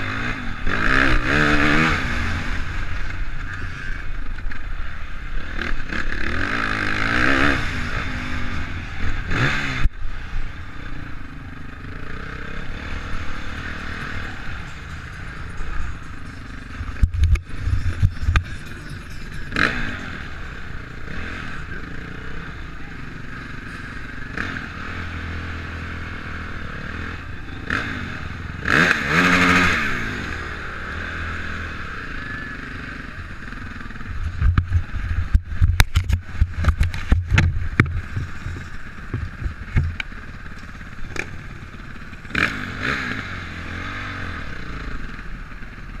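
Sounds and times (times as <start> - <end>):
motocross engine running: 0.0 - 46.0
sharp knocks and rattles: 13.5 - 20.1, 34.3 - 41.4.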